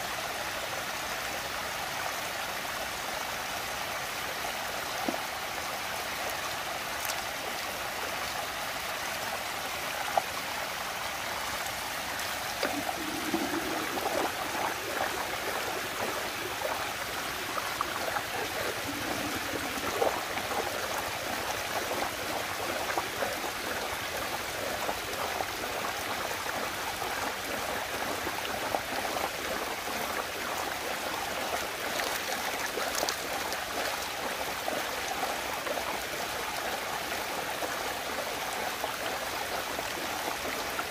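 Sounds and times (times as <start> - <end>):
water swirling down a whirlpool: 9.2 - 40.9.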